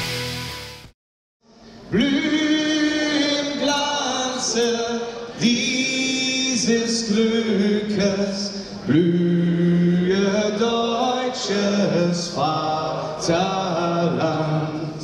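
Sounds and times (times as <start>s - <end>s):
rock music with drums: 0.0s - 0.9s
voices singing an anthem: 1.9s - 15.0s.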